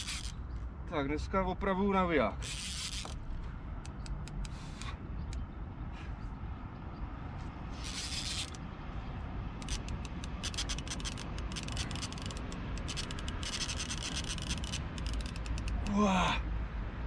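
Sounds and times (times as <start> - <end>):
fishing reel clicks and scrapes: 0.0 - 0.4, 2.4 - 3.2, 7.7 - 8.6, 9.6 - 15.9
fishing reel rasp: 0.0 - 0.4, 2.4 - 3.2, 7.7 - 8.6, 9.6 - 15.9.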